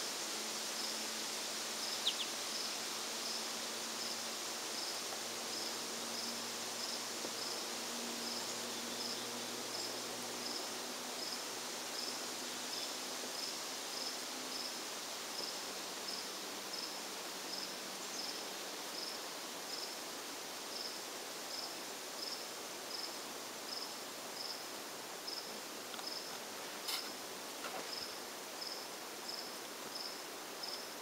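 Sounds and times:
background hiss: 0.0 - 31.0
cricket chirping: 1.8 - 3.4, 8.2 - 14.8, 20.7 - 24.7, 25.3 - 31.0.

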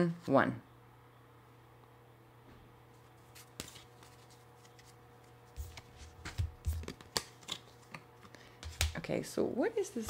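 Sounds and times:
cards tapping and slapping on table: 5.6 - 7.7, 8.6 - 9.0.

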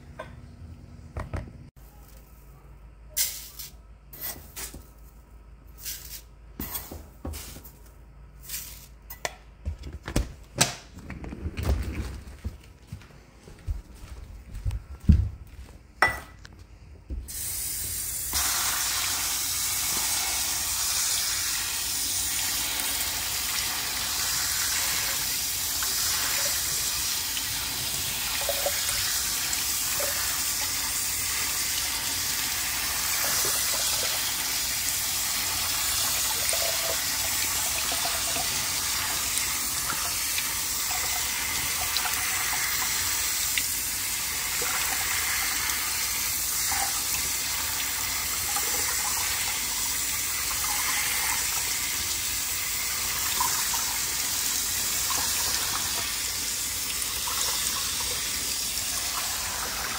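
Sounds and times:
faucet spraying water on rice: 17.4 - 59.9.

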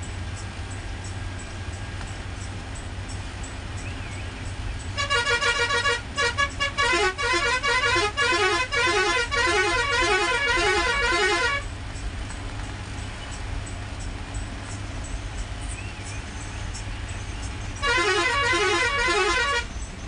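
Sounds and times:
bus engine rumble: 0.0 - 20.0
road noise: 0.0 - 20.0
bus musical horn tune: 4.9 - 11.8, 17.7 - 19.8.

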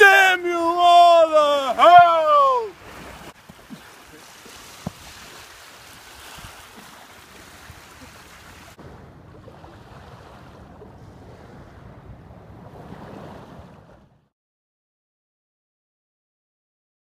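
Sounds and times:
waves washing on shore: 0.0 - 14.3
wind on microphone: 4.6 - 14.3.

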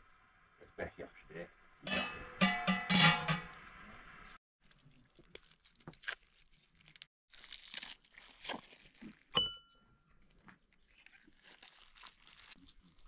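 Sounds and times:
crisp crunching and tearing: 4.6 - 9.3, 10.1 - 13.0.

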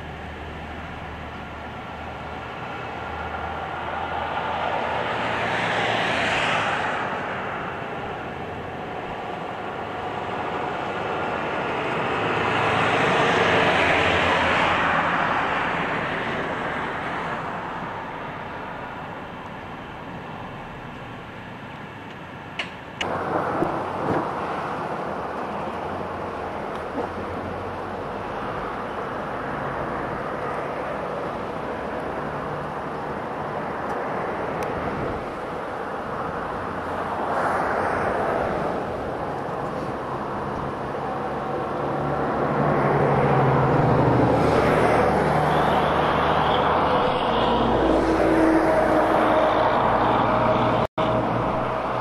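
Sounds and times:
road traffic noise: 0.0 - 52.0
truck passing: 0.0 - 52.0.

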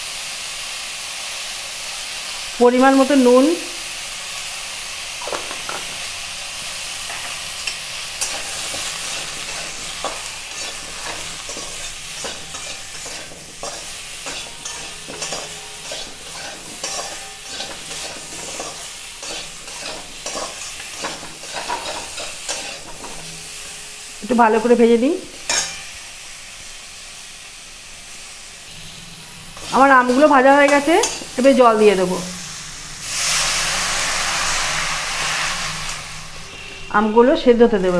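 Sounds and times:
food sizzling in hot oil: 0.0 - 37.9
metal spatula scraping a pan: 5.2 - 23.8, 25.4 - 26.0, 29.5 - 32.0.

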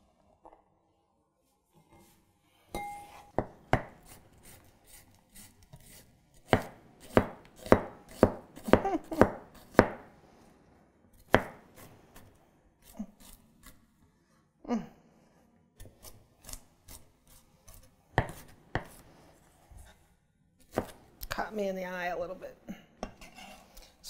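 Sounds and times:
knife chopping on cutting board: 3.4 - 10.1, 11.2 - 11.9, 17.7 - 19.0, 20.7 - 21.0.

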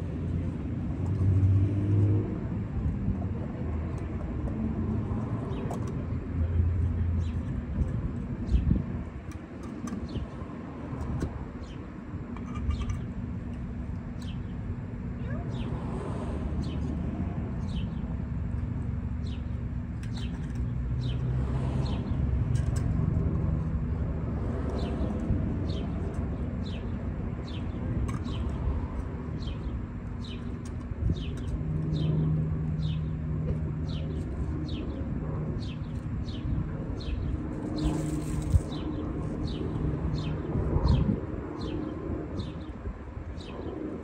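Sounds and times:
small birds chirping: 9.6 - 22.9, 24.7 - 44.0.

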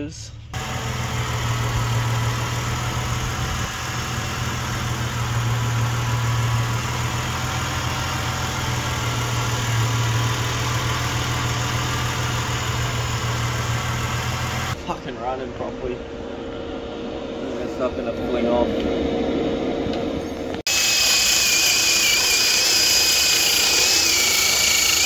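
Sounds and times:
car engine idling: 0.0 - 17.2.

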